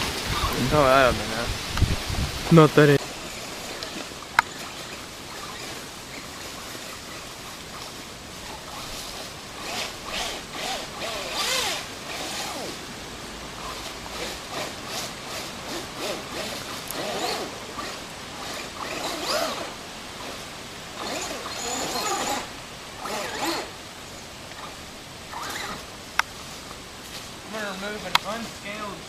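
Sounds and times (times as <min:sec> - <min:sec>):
electric motor whining: 0:02.7 - 0:12.8, 0:13.6 - 0:23.8, 0:24.5 - 0:25.9.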